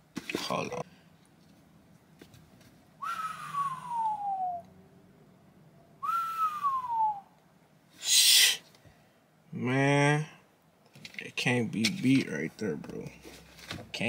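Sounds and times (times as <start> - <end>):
person whistling falling whistles: 3.0 - 4.6, 6.0 - 7.3
loud hiss of breath: 8.0 - 8.6.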